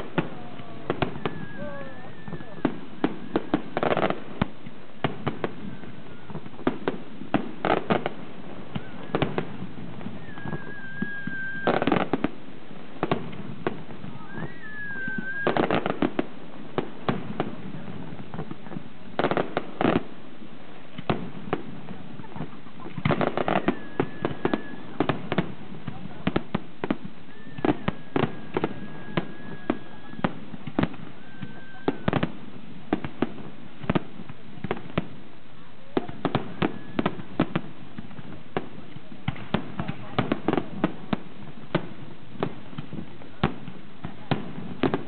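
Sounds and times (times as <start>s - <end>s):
high firework whistles: 0.0s - 12.4s, 13.0s - 16.3s, 22.4s - 32.4s, 36.0s - 37.7s
firework bangs and crackles: 0.0s - 45.0s.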